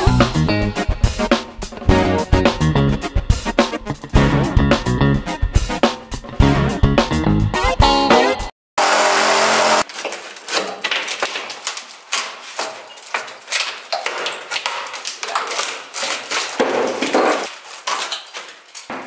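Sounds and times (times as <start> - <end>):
demolition knocks and clatter: 9.9 - 19.0.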